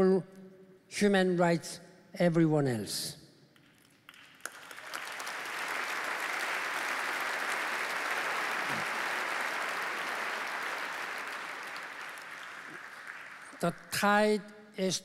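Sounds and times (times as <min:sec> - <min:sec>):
audience applauding: 0:03.9 - 0:13.9.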